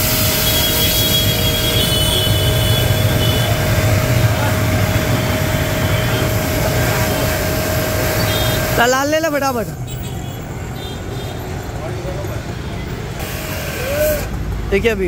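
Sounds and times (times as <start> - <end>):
pressure washer motor humming: 0.0 - 9.3, 13.2 - 14.5
thin steady whine: 0.0 - 9.3
water jet hissing: 0.0 - 9.3, 13.2 - 14.4.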